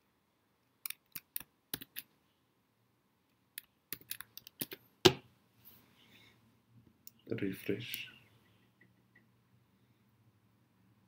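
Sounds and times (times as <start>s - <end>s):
computer keyboard typing: 0.9s - 2.1s, 3.9s - 4.8s.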